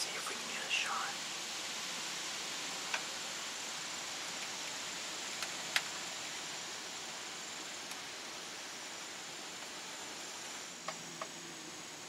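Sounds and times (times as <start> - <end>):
wind hissing through trees: 0.0 - 12.0
faint sharp clicks: 2.9 - 3.1.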